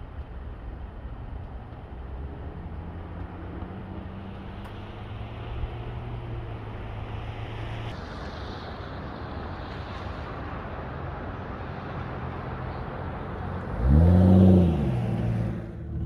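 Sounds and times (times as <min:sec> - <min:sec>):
tyres hissing on wet pavement: 0:06.7 - 0:13.2.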